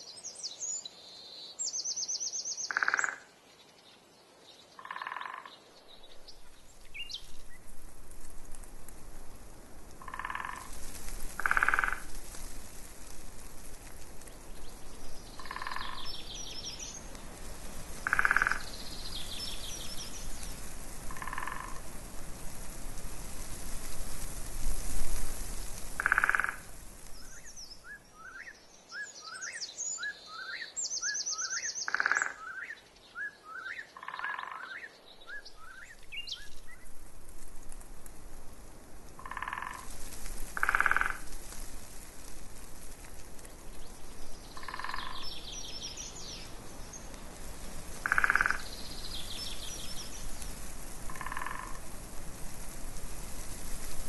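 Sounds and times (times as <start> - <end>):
soft hiss: 0.0 - 4.9, 5.5 - 34.0, 34.6 - 54.0
birds singing: 0.1 - 7.6, 14.5 - 17.2, 18.0 - 20.6, 27.2 - 36.8, 43.8 - 47.2, 48.0 - 50.4
frogs croaking: 2.6 - 3.4, 4.8 - 5.7, 10.0 - 12.1, 15.3 - 16.6, 18.0 - 21.9, 26.0 - 27.5, 31.5 - 32.8, 33.6 - 34.9, 39.2 - 41.3, 44.5 - 45.6, 48.0 - 49.4, 51.1 - 51.9.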